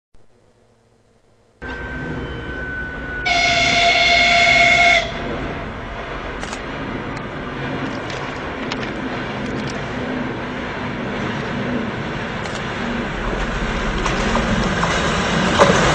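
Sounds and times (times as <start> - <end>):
train engine and wheels rumbling: 1.4 - 15.9
locomotive horn blast: 1.6 - 7.7.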